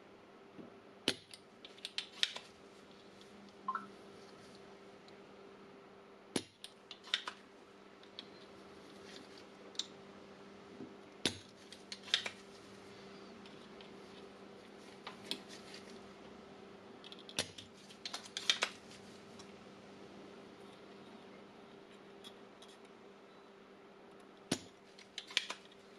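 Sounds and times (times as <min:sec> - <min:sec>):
faint steady hum: 0:00.0 - 0:25.9
desoldering pump clicks and snaps: 0:24.5 - 0:25.8.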